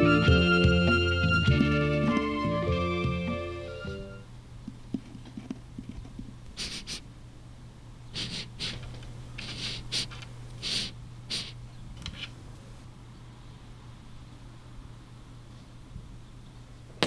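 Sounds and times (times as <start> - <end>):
cartoon mouse sniffing: 6.5 - 7.1, 8.2 - 11.6.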